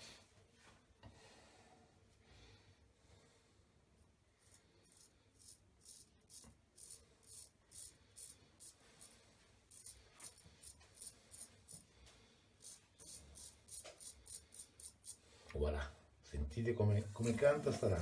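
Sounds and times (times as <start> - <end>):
straight razor scraping stubble: 4.4 - 11.9, 16.9 - 18.0.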